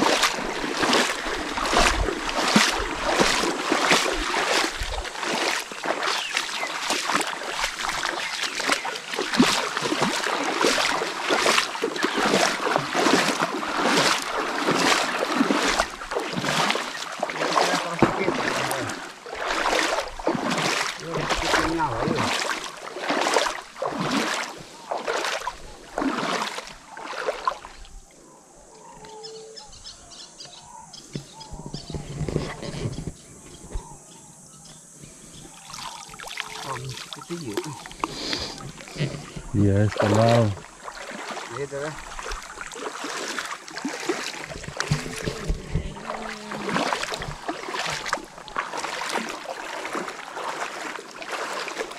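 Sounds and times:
river flowing: 0.0 - 27.8, 35.5 - 51.9
water splashing in surges: 0.0 - 28.2, 35.4 - 51.9
bird chirps: 28.8 - 32.1.

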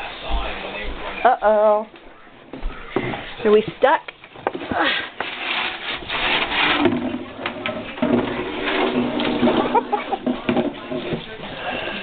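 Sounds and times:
plastic jug scraping across floor: 4.4 - 12.0.

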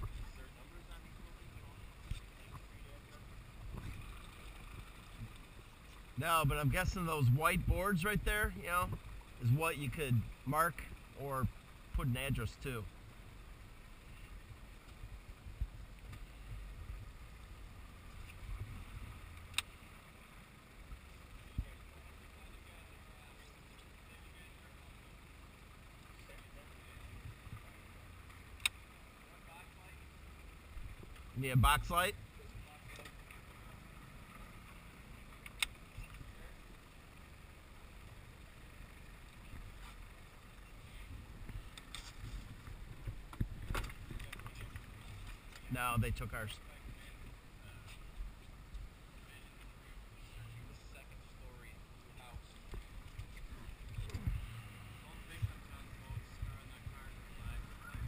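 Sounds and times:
sharp click: 28.6 - 28.8, 35.4 - 35.8.

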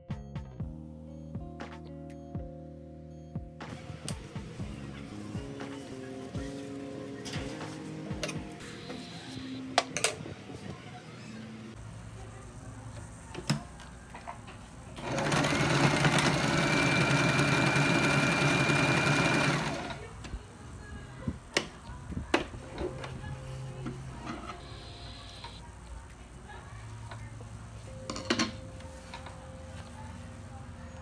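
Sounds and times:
sewing machine motor whine: 15.0 - 20.0.

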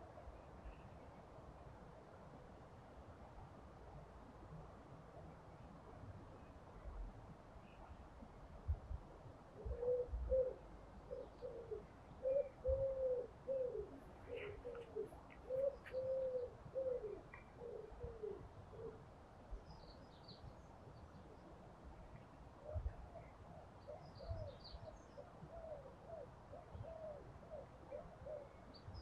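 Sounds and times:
small birds chirping faintly: 0.0 - 29.0
pigeon cooing: 9.6 - 19.0.

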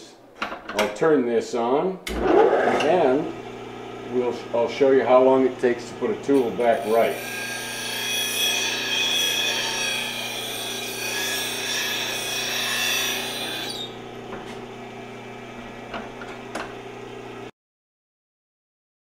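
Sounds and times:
grinder motor humming: 2.1 - 17.5
tool grinding on wheel: 5.2 - 14.7.

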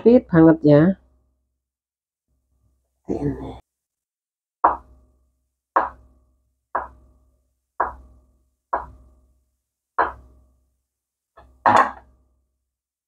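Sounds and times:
knife striking cutting board: 4.6 - 5.0, 5.8 - 6.2, 6.8 - 7.1, 7.8 - 8.2, 8.8 - 9.2, 10.0 - 10.4.

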